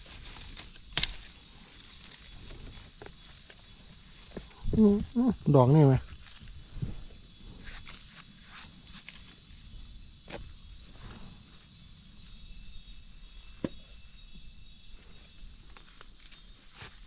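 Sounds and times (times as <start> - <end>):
footsteps through undergrowth: 0.0 - 4.6
insect chorus buzzing: 0.0 - 17.0.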